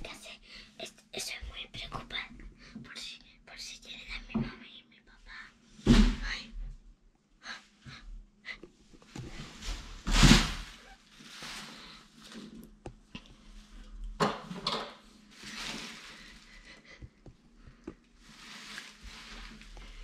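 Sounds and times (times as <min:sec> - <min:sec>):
rustling and handling noises: 0:08.7 - 0:20.0.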